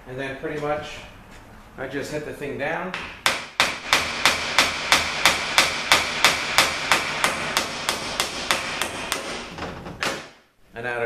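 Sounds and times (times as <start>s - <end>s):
hammer striking metal: 2.9s - 10.4s.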